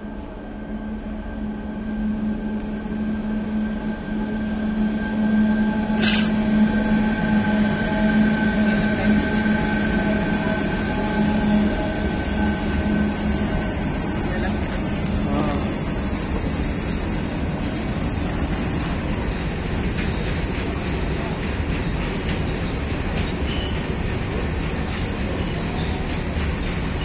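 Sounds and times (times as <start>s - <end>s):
electric locomotive humming and whining: 0.0s - 27.0s
sharp hiss: 5.9s - 6.5s.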